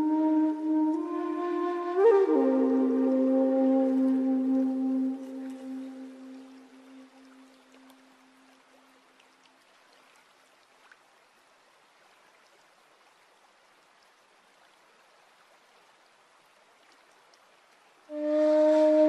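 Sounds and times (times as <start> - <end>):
background music note: 0.0 - 7.6, 18.1 - 19.0
water trickling in stream: 0.0 - 19.0.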